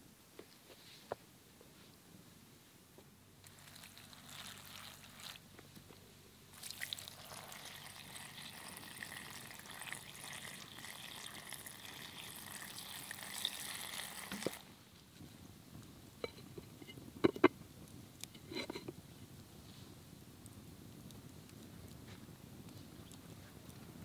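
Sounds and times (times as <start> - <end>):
water pouring onto leaves: 3.4 - 5.5, 6.5 - 14.7.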